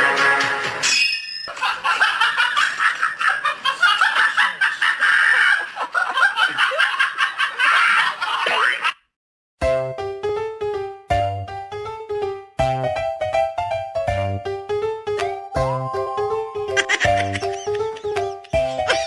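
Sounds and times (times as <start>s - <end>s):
person laughing: 1.7s - 8.9s, 16.7s - 19.0s.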